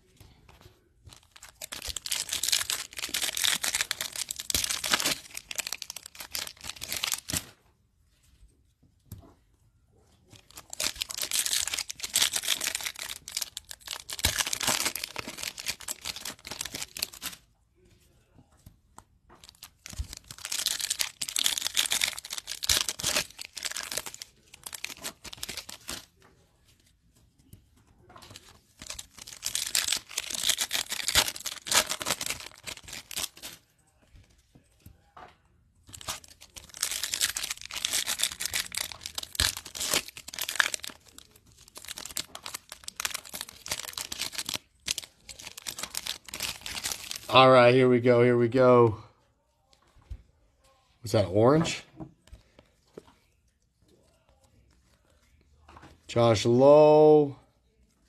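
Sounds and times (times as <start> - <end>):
foil wrappers torn and crinkled: 1.1 - 7.5, 10.4 - 17.4, 19.4 - 26.1, 28.3 - 33.6, 35.9 - 47.3.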